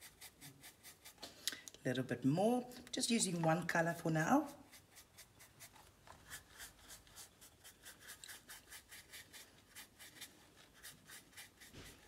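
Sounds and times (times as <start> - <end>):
paintbrush rasping on canvas: 0.0 - 1.2, 3.8 - 12.0.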